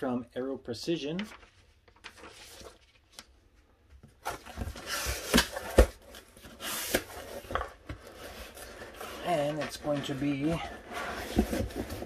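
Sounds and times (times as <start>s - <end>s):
cardboard scraping and rubbing: 4.3s - 12.0s.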